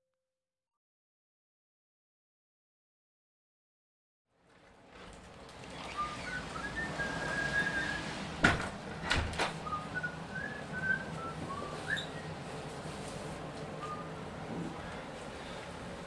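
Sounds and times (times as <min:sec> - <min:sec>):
person whistling a tune: 0:06.0 - 0:08.0, 0:09.6 - 0:12.3
door clunking shut: 0:08.4 - 0:09.6.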